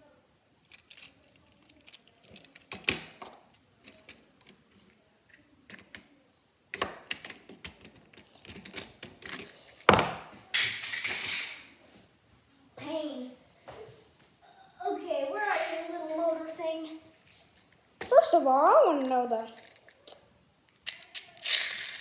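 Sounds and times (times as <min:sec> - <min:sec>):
plastic toy parts clicking: 0:00.6 - 0:04.6, 0:06.7 - 0:09.9, 0:19.0 - 0:22.0
rustling noise: 0:15.4 - 0:18.4.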